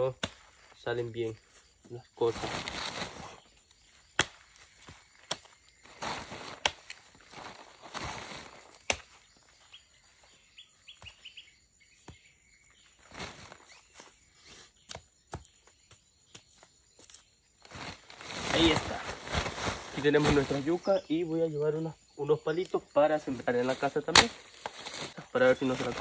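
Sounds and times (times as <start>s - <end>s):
rustling plants: 0.0s - 11.5s, 12.3s - 14.8s, 16.6s - 26.0s
bird chirping: 0.0s - 26.0s
plant stems snapping: 4.1s - 5.6s, 6.5s - 7.0s, 8.7s - 9.2s, 24.1s - 25.1s.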